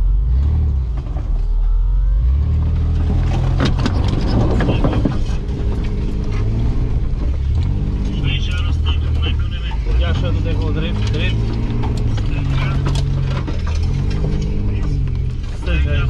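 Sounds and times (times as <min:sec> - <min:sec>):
off-road vehicle engine low revs: 0:00.0 - 0:16.0
branches scraping vehicle body: 0:10.5 - 0:15.9.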